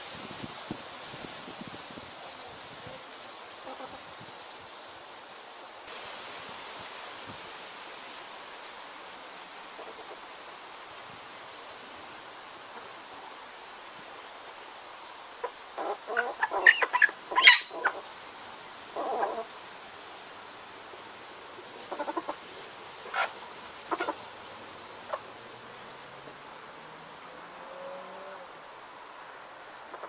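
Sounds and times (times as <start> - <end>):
faint steady hiss: 0.0 - 30.0
hens clucking: 15.4 - 18.1, 19.0 - 19.5, 21.8 - 24.3.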